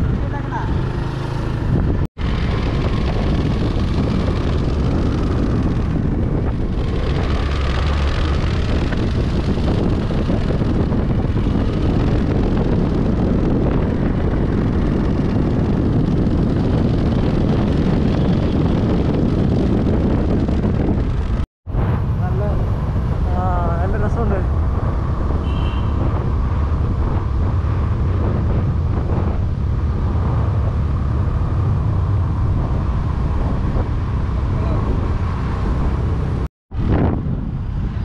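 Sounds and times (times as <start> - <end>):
wind rushing over microphone: 0.0 - 38.0
motorbike engine running: 0.2 - 21.4.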